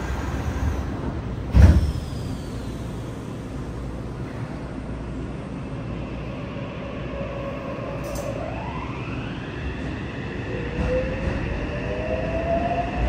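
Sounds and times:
subway doors thud: 0.0 - 4.7
train car equipment hum: 0.0 - 11.4.

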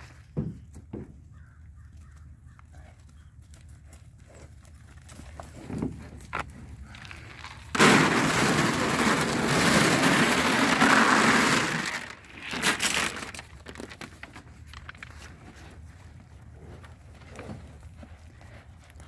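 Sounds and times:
feed pellets pouring: 7.1 - 13.9.

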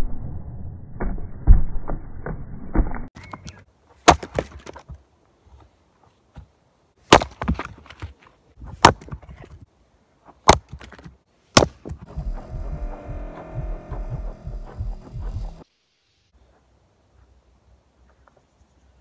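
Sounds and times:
maul chopping into log: 4.0 - 4.9, 7.1 - 8.1, 8.7 - 9.5, 10.4 - 12.1
steady hum: 12.0 - 16.3.

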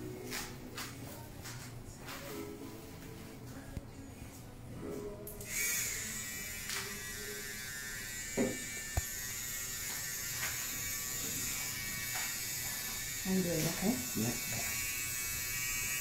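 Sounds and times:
handheld electric machine buzzing: 5.4 - 16.0.

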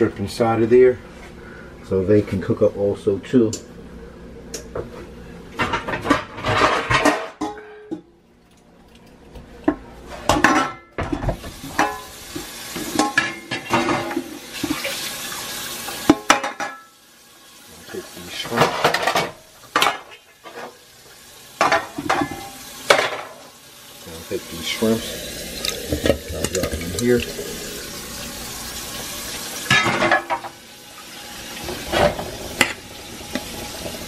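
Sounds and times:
bowl and sheet pan clattering: 5.6 - 7.9, 18.4 - 20.8, 21.6 - 23.4, 29.7 - 30.6.

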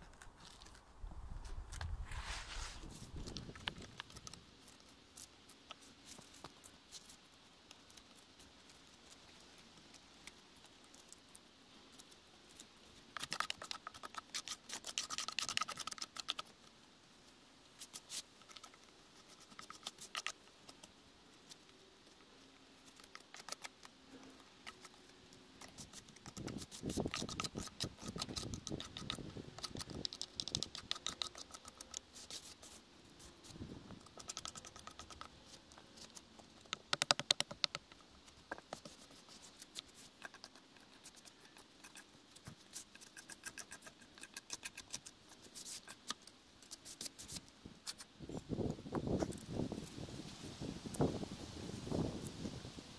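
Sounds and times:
gloved hands rubbing a log: 0.0 - 7.3, 12.4 - 16.7, 17.8 - 48.1.

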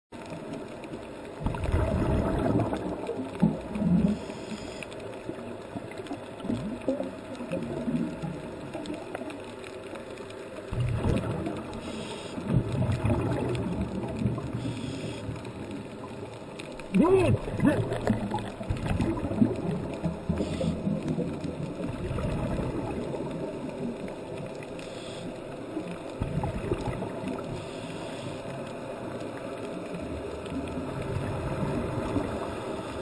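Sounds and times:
bubbles gurgling underwater: 1.4 - 4.3, 5.2 - 9.4, 10.7 - 24.7, 25.8 - 27.7, 29.4 - 33.0
muffled regulator breathing: 14.6 - 15.5.

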